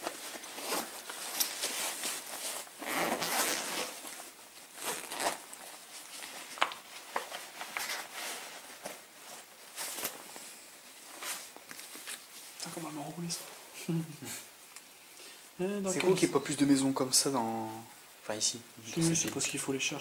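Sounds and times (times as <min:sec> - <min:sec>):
bag and clothing rustling: 0:00.0 - 0:13.7
zip being worked: 0:02.4 - 0:04.0, 0:04.7 - 0:05.5.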